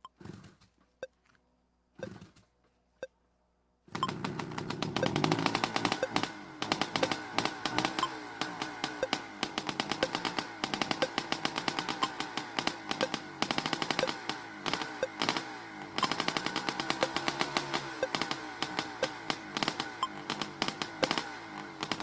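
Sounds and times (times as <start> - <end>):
rapid rattle of sharp pops: 4.0 - 22.0.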